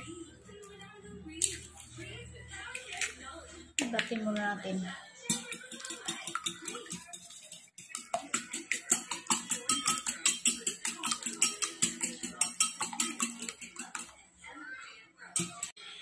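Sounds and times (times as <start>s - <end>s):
whisk clicking against bowl: 5.3s - 14.2s.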